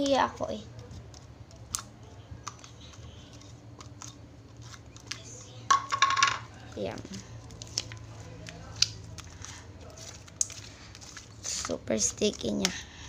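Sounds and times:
sticky slime clicking and snapping: 1.1 - 2.7, 7.5 - 10.6.

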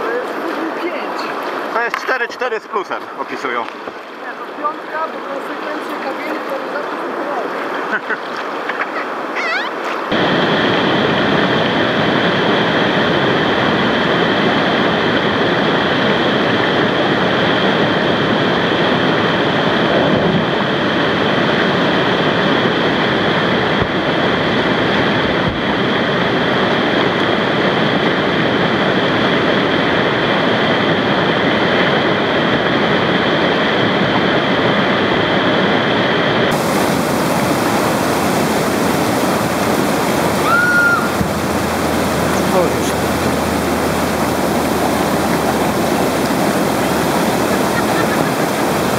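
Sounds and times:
whitewater rushing over rocks: 0.0 - 48.9.

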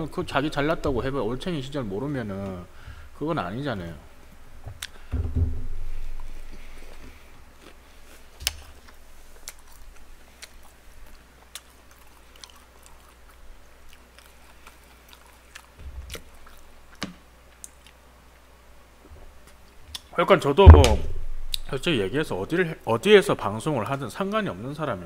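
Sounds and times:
mouth clicks and crunches: 4.7 - 5.0, 6.2 - 18.5, 19.4 - 20.2
dull low bump: 5.2 - 6.2, 20.6 - 22.3
chewing fried chicken: 6.3 - 18.5.

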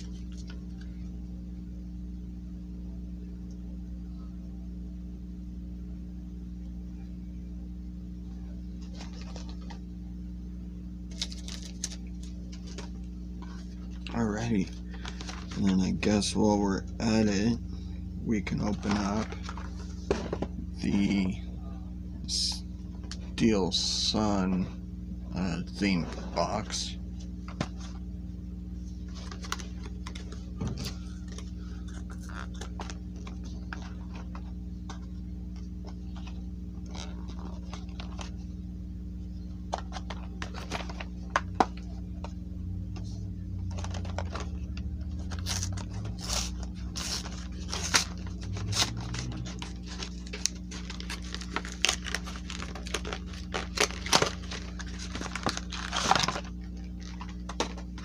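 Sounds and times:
steady low hum: 0.0 - 58.0
plastic wrap and cardboard crinkling: 8.8 - 9.9, 11.1 - 14.0, 43.6 - 58.0.

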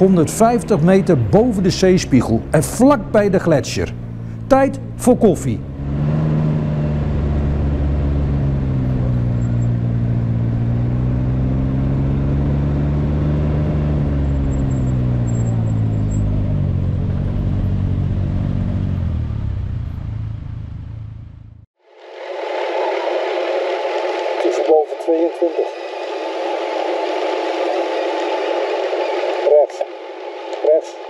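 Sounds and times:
motorcycle engine running: 0.0 - 21.6.

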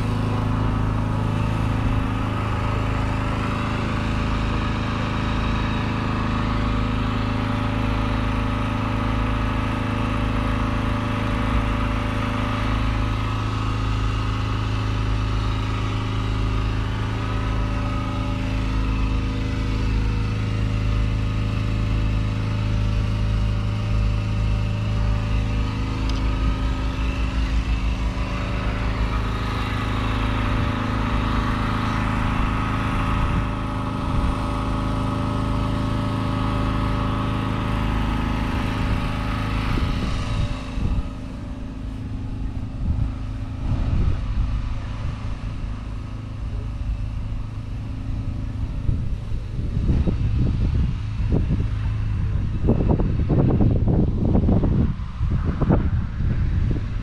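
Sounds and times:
engine idling: 0.0 - 57.0
wind buffeting microphone: 22.6 - 34.8, 38.1 - 45.9, 46.8 - 57.0.

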